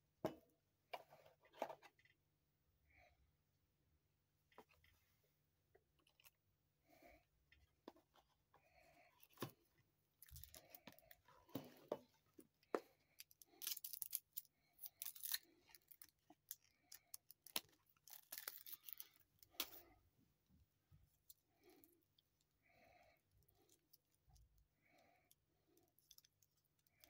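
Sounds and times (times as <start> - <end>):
paper cards rustling: 13.2 - 19.8.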